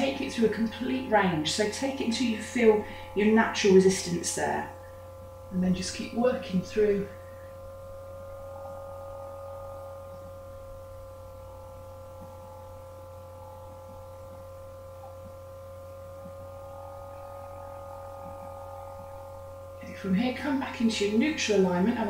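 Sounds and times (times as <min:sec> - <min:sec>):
electrical hum: 0:00.0 - 0:22.0.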